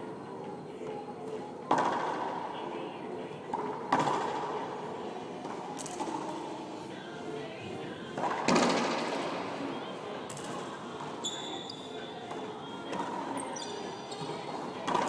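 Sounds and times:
sneakers squeaking on court: 11.2 - 12.2, 13.4 - 14.7.

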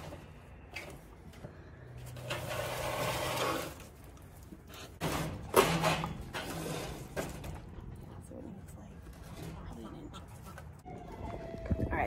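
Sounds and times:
wooden box scraping against wire cage: 2.2 - 3.9.

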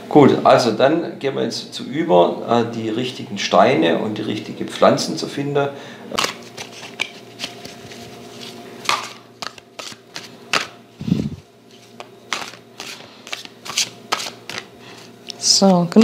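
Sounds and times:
cards being shuffled: 6.2 - 15.8.

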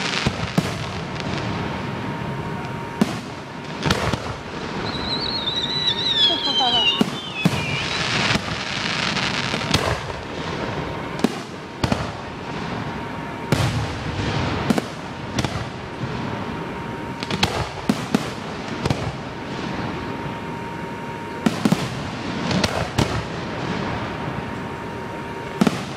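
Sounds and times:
falling firework whistle: 0.0 - 15.6, 16.6 - 25.9
firework shells booming: 0.0 - 16.4, 25.5 - 25.9
firework crackling: 0.0 - 25.9.

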